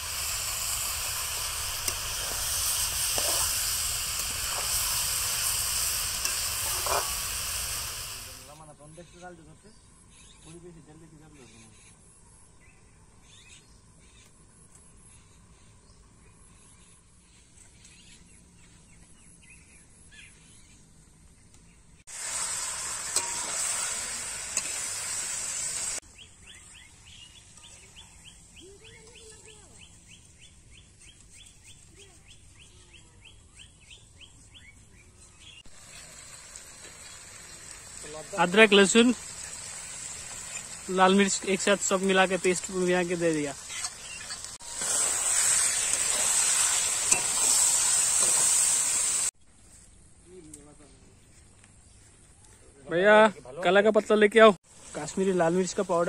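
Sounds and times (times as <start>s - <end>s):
meat sizzling in a wok: 0.0s - 8.6s, 22.0s - 29.4s, 35.5s - 49.4s, 54.6s - 56.0s
metal spatula stirring: 1.0s - 7.8s, 23.0s - 23.9s, 38.0s - 48.6s
bird calls: 43.5s - 44.6s.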